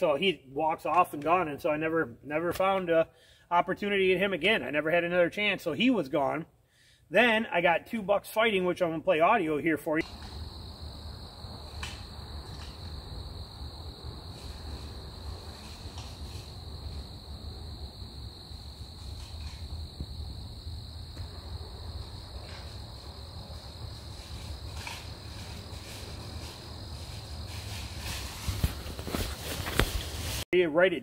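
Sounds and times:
crickets chirping: 10.0 - 30.4.

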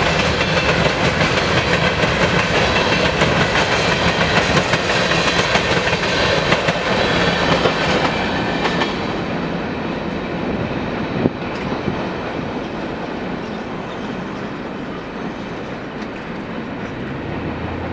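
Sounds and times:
train wheels clattering over rail joints: 0.0 - 9.3.

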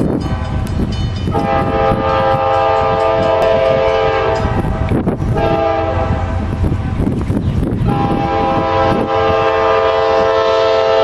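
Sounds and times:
locomotive air horn chord: 1.3 - 6.4, 7.9 - 11.0.

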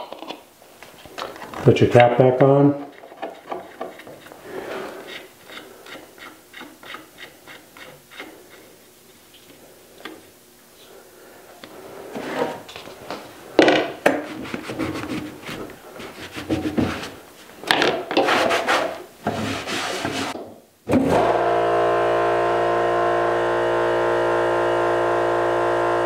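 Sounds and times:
cloth rag wiping: 14.2 - 17.6, 18.2 - 20.4.

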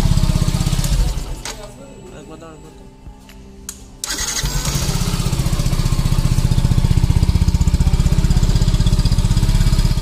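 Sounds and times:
motorcycle engine idling: 0.0 - 1.4, 4.1 - 10.0.

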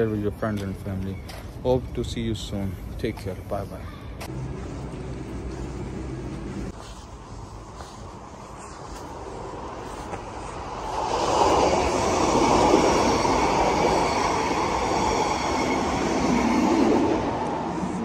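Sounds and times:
electric train passing: 4.3 - 8.5, 9.1 - 18.0.

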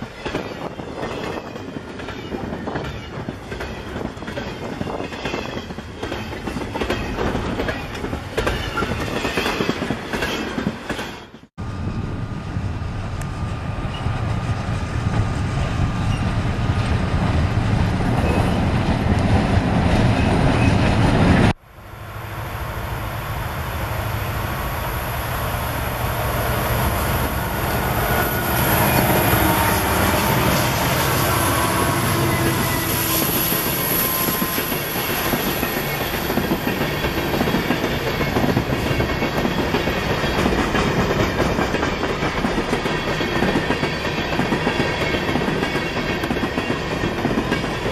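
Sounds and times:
train wheels clickety-clack: 0.0 - 11.5, 13.2 - 17.0, 28.5 - 47.9
diesel locomotive rumble: 11.6 - 42.8.

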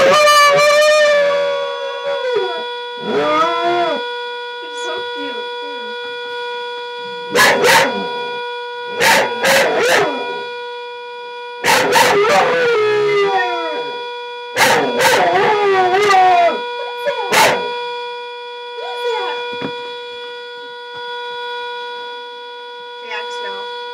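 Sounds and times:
dog howling: 0.0 - 4.0, 7.3 - 8.2, 9.0 - 10.5, 11.6 - 14.0, 14.6 - 17.8.

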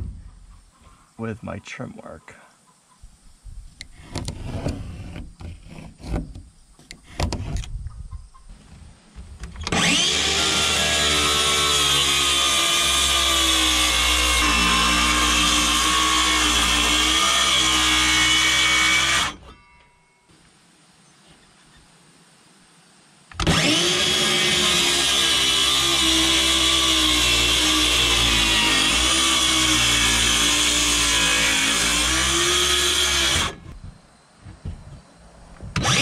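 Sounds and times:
pencil scraping on boards: 4.0 - 7.6
circular saw cutting wood: 9.7 - 19.6, 23.4 - 33.7, 35.8 - 36.0.

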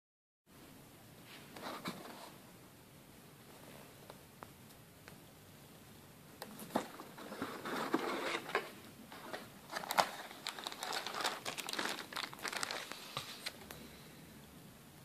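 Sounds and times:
plastic bag crinkling: 9.3 - 13.6.

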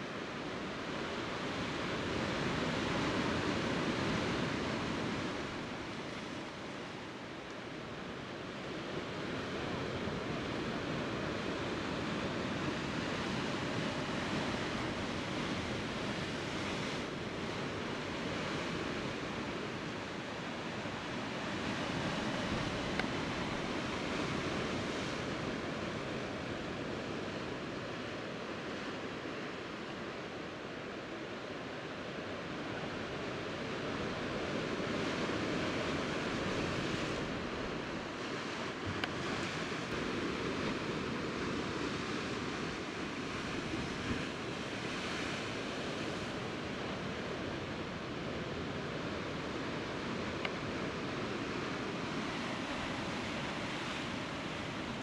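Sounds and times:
surf washing on rocks: 33.5 - 55.0.

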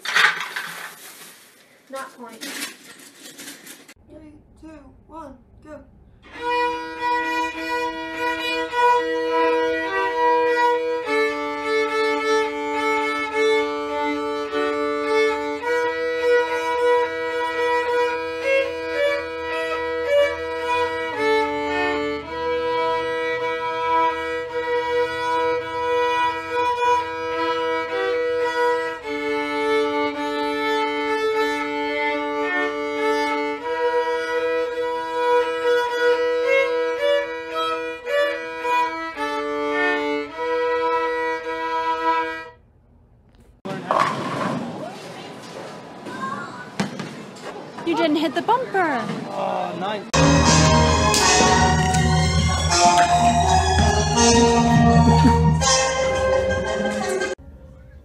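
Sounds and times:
two violins bowing slow notes: 6.2 - 42.6, 50.2 - 56.8.

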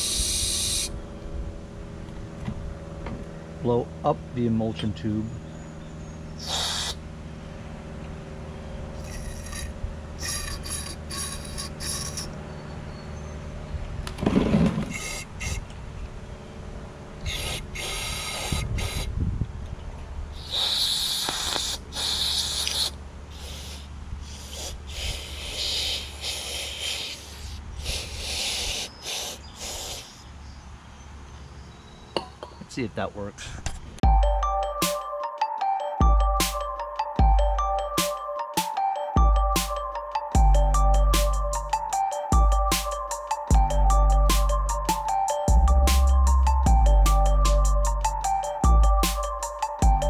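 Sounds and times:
aerosol spray hissing bursts: 0.0 - 0.9, 6.4 - 7.0, 17.3 - 19.1, 20.4 - 30.2.

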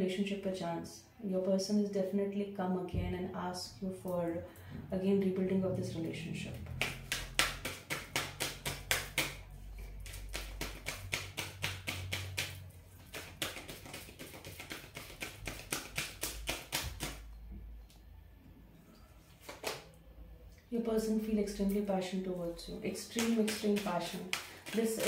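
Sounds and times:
cards being shuffled: 6.8 - 17.2, 19.4 - 19.9, 23.0 - 25.0.

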